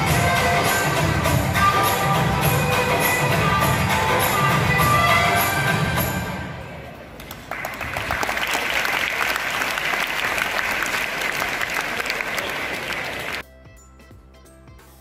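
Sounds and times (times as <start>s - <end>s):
dance music: 0.0s - 6.4s
audience applauding: 7.2s - 13.4s.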